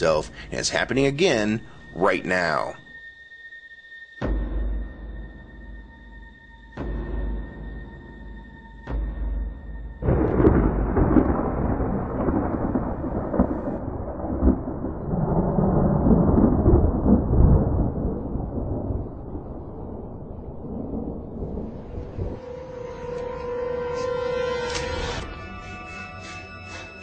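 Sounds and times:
thunder crack and rumble: 10.0 - 24.1.

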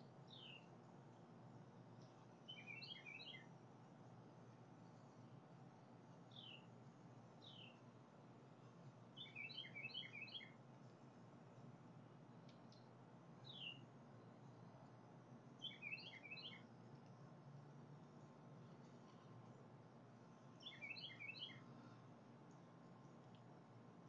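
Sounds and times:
low steady hum: 0.0 - 24.0
short bird chirps: 2.5 - 3.5, 9.2 - 10.6, 15.6 - 16.6, 20.6 - 21.7.

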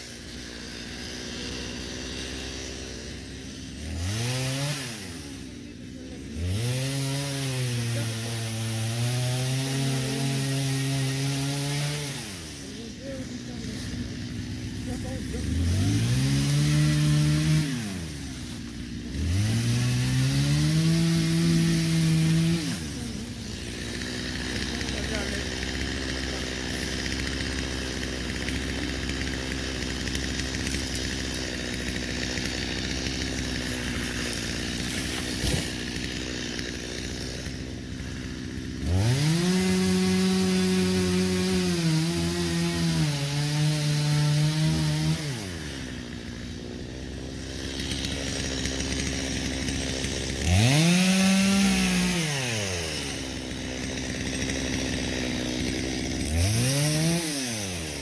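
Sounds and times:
chainsaw idling and revving: 0.0 - 58.0.

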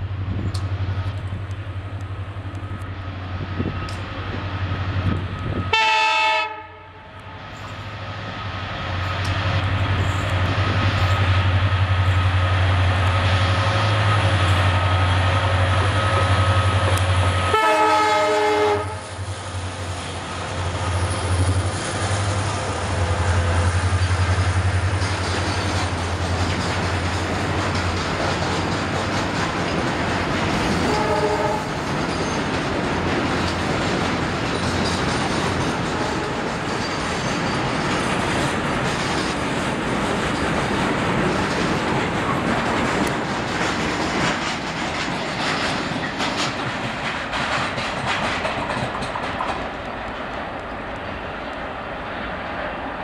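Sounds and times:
diesel locomotives humming: 0.0 - 53.0
train horn blast: 5.5 - 7.2, 16.0 - 19.1, 30.8 - 31.8.

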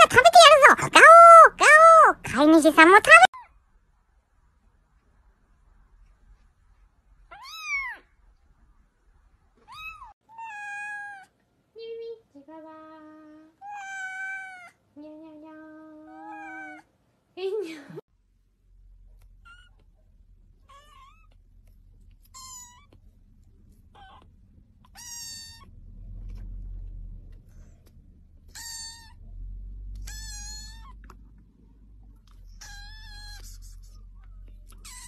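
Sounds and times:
kitten meowing: 7.3 - 8.0, 9.7 - 11.3, 22.2 - 23.0, 23.9 - 25.7, 28.5 - 29.2, 29.9 - 31.2, 32.6 - 33.7, 34.6 - 35.0
low rumble: 25.6 - 30.2.

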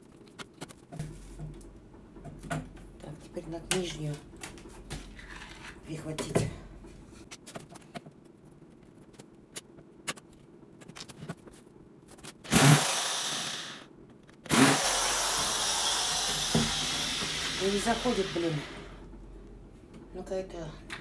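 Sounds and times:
cordless screwdriver running: 12.5 - 13.8, 14.5 - 18.9.

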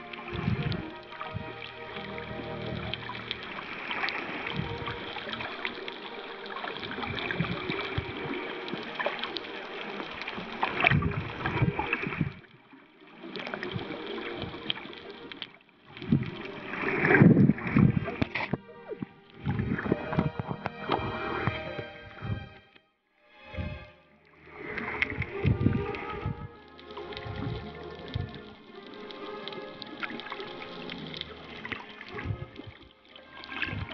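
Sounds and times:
splashy surges of water: 0.0 - 22.5, 24.4 - 33.9
water sloshing and gurgling: 0.0 - 33.9.

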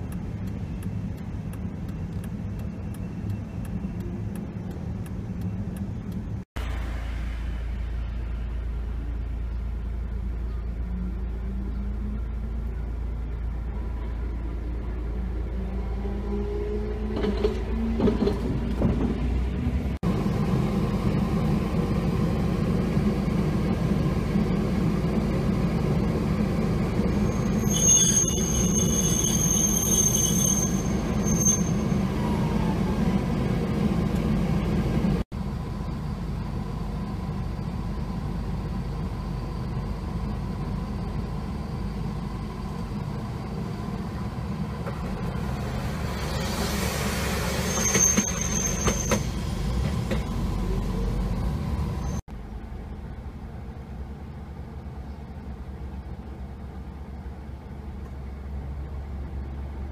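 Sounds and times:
road traffic: 0.0 - 59.9
tram rumble: 0.0 - 59.9
tram wheels squealing: 25.5 - 35.2, 39.2 - 52.2.

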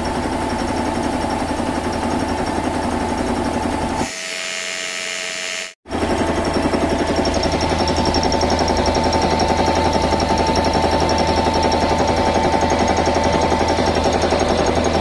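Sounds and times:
air compressor pump chugging: 0.0 - 5.1, 5.8 - 15.0
steady whine: 4.1 - 15.0.

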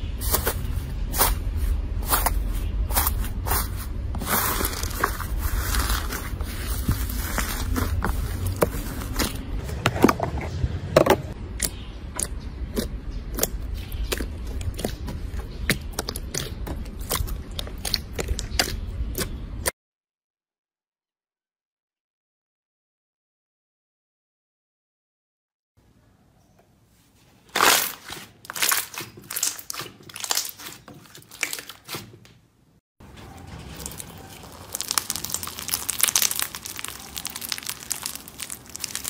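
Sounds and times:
slime being squished: 2.0 - 9.5, 11.7 - 19.4, 27.5 - 32.1, 33.8 - 39.0.

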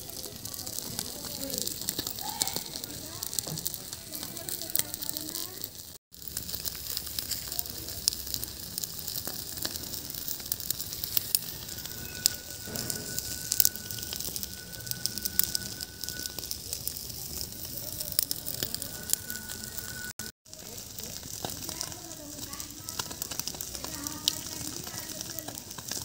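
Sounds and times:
fish sizzling on grill: 0.0 - 26.0
wood fire crackling: 0.0 - 26.0
faint high whistle-like tone: 10.9 - 20.3.

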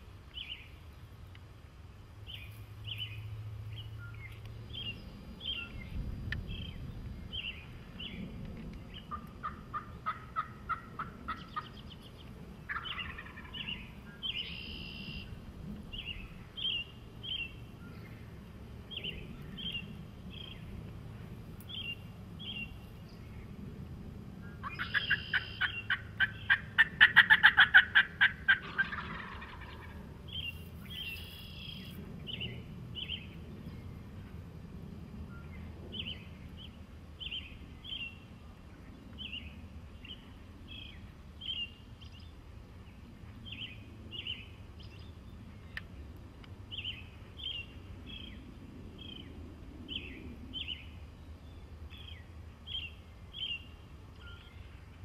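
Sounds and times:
songbird chirping: 0.0 - 1.5, 2.2 - 20.9, 21.6 - 23.6, 24.4 - 34.4, 35.2 - 55.0
turkey gobbling: 9.1 - 11.7, 12.7 - 13.5, 24.6 - 30.0.

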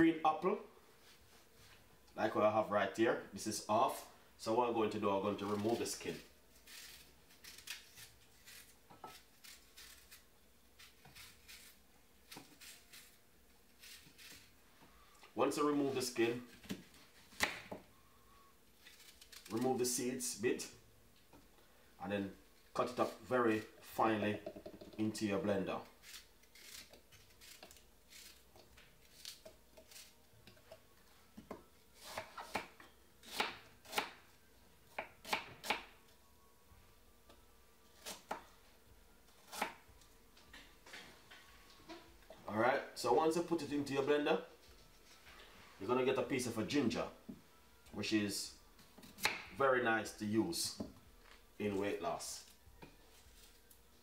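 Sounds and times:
knife scraping apple skin: 5.3 - 14.5, 18.8 - 20.1, 25.8 - 30.2
knife chopping on wooden board: 49.1 - 49.5.

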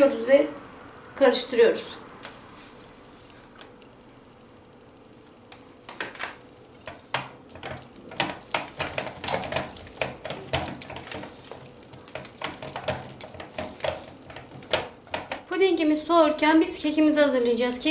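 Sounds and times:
whisk clicking and scraping pan: 6.8 - 15.5.

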